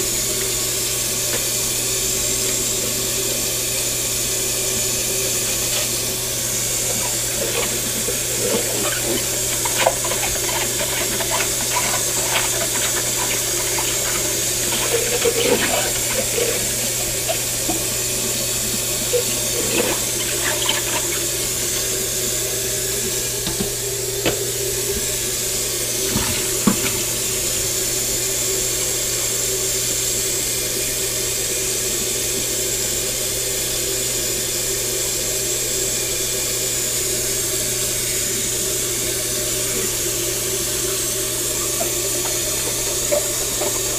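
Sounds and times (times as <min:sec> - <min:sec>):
tap running into metal sink: 0:23.4 - 0:24.4, 0:26.0 - 0:27.2, 0:41.6 - 0:43.9.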